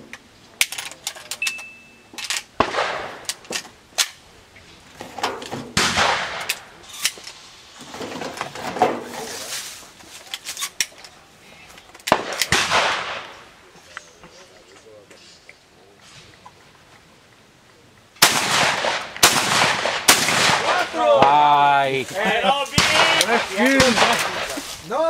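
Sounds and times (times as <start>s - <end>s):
shotgun shots echoing: 2.6s - 3.3s, 5.7s - 6.5s, 12.1s - 13.5s, 18.2s - 21.4s, 22.7s - 24.7s.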